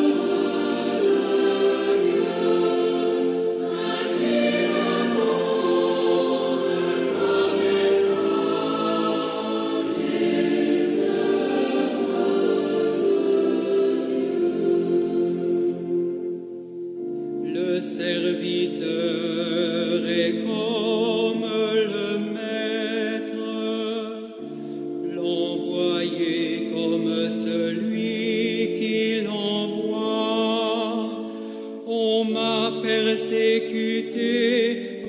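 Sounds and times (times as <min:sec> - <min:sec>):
choir singing a hymn: 0:00.0 - 0:35.0
singers breathing: 0:31.3 - 0:31.8.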